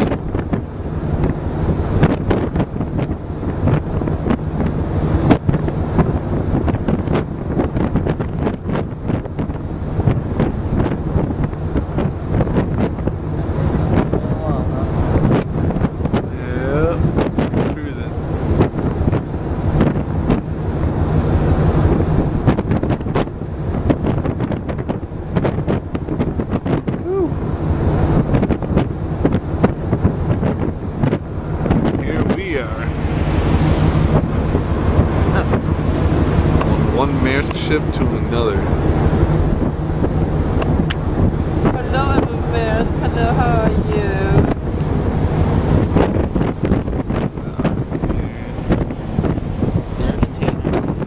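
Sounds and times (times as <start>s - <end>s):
low rumble: 0.0s - 51.0s
wind buffeting the microphone: 0.0s - 51.0s.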